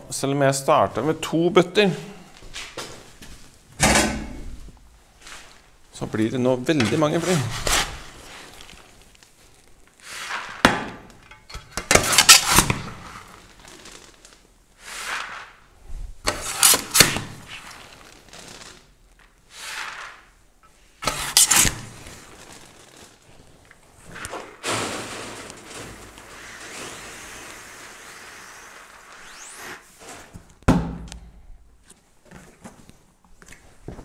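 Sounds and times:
grain sliding and pouring: 4.5s - 5.7s, 6.8s - 10.6s, 12.0s - 30.3s.

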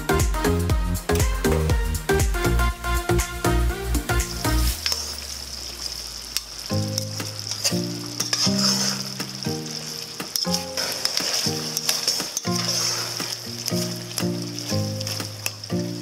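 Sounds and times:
meat sizzling in a pot: 4.3s - 16.0s
metal spoon scraping a pot: 7.8s - 13.9s.

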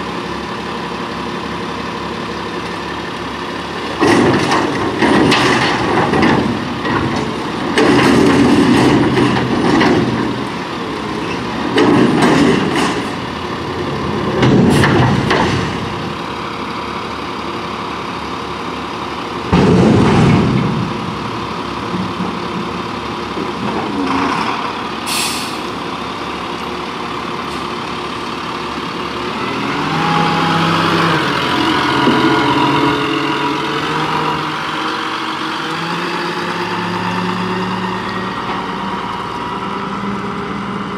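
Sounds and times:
garbage truck engine running: 0.0s - 40.9s
air hiss: 25.1s - 25.6s.

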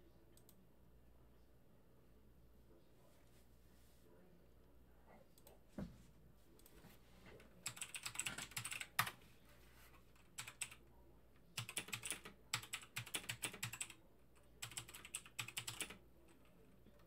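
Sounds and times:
typing on computer keyboard: 7.6s - 9.2s, 10.2s - 10.8s, 11.6s - 14.0s, 14.6s - 16.5s.

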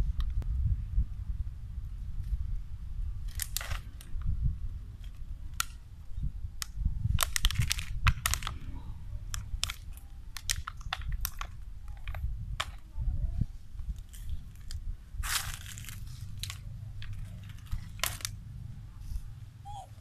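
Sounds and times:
steady low rumble: 0.0s - 10.5s, 11.1s - 20.0s
sharp crackles and crunches: 6.6s - 8.7s, 9.3s - 12.9s, 13.8s - 18.4s.

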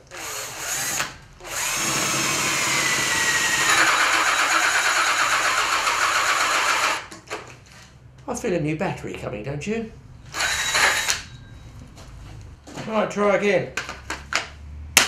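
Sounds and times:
cordless drill cutting wood: 0.0s - 7.1s, 10.3s - 11.2s.

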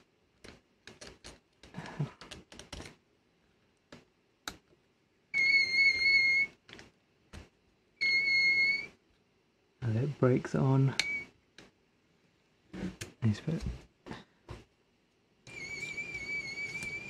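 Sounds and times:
plastic parts clicking and tapping: 0.4s - 3.0s, 6.6s - 7.5s.

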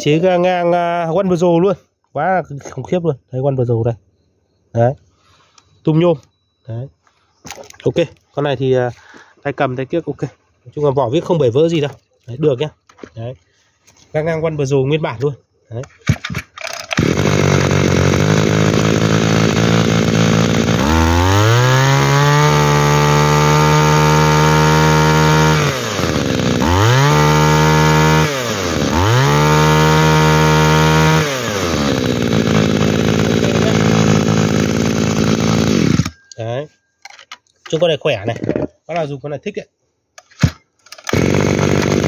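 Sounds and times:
brush cutter engine idling and revving: 16.6s - 36.2s, 40.9s - 42.0s.

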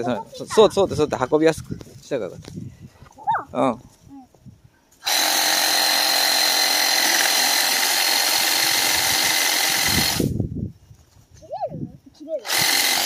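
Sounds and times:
reciprocating saw cutting branch: 5.0s - 10.3s, 12.4s - 13.0s.

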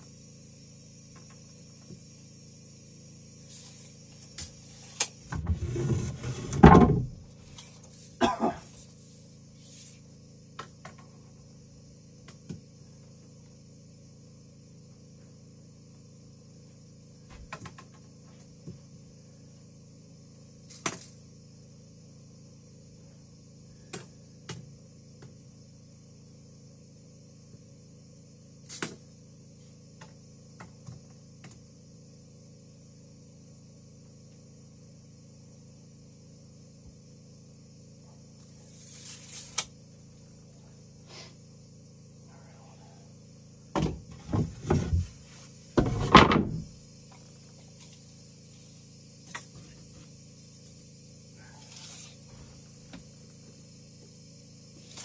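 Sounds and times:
building work knocks and clunks: 5.3s - 7.4s, 43.7s - 46.8s.

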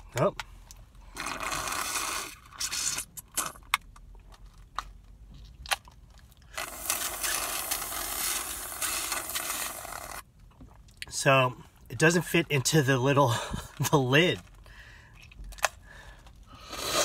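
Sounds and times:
slurping drink through straw: 1.1s - 3.6s, 6.5s - 10.2s, 16.6s - 17.0s.

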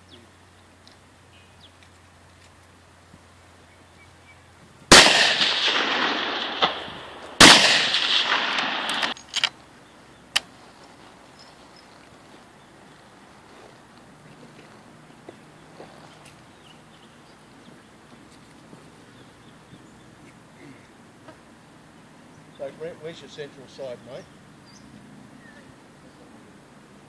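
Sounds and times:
rifle shots with echo: 4.9s - 9.2s.

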